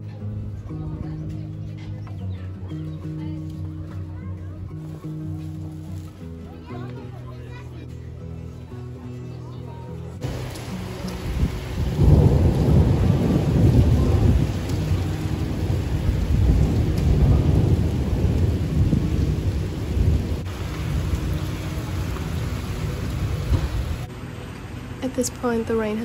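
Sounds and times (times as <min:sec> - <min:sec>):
thunder rumble: 0:10.2 - 0:24.1
rain falling: 0:10.2 - 0:26.0.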